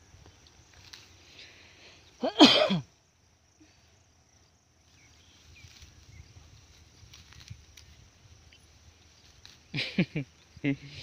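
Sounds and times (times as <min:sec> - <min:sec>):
faint field sound: 0:00.0 - 0:11.0
person sneezing: 0:02.2 - 0:02.9.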